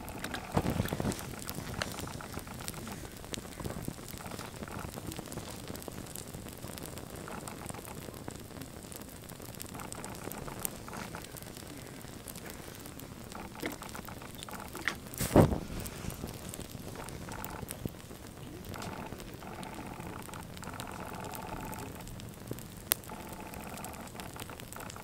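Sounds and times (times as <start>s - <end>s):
flames fluttering and crackling: 0.0s - 25.0s.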